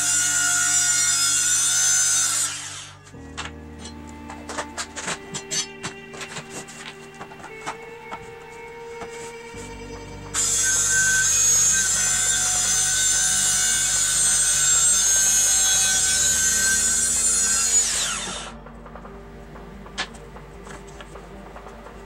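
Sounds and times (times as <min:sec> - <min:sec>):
circular saw cutting plywood: 0:00.0 - 0:03.2, 0:09.0 - 0:19.2
saw blade spinning down: 0:10.4 - 0:18.6.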